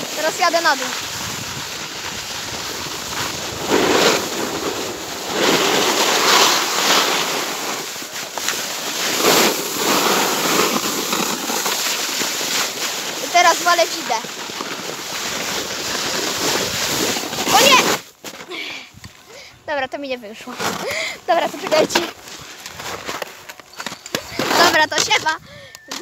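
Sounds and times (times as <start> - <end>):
snowboard sliding on snow: 0.0 - 18.2
wind on microphone: 1.0 - 5.4.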